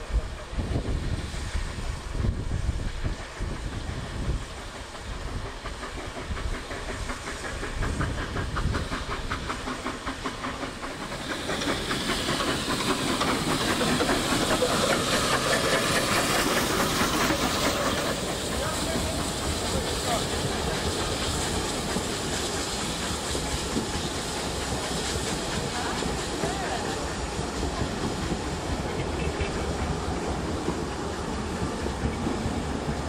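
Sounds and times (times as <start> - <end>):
steam hissing: 0.0 - 33.0
wind rumble on microphone: 0.1 - 4.5.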